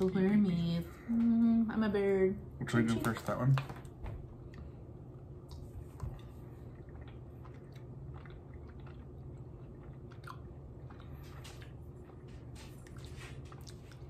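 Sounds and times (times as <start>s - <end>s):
low steady hum: 0.0s - 14.0s
person chewing gummy candy: 5.4s - 14.0s.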